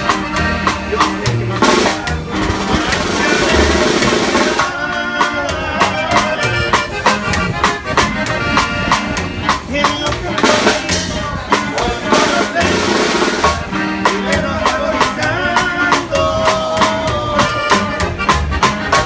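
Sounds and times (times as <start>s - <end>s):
accordion melody: 0.0s - 19.0s
guitar: 0.0s - 19.0s
upright bass: 0.0s - 19.0s
snare drum beat: 1.6s - 4.7s.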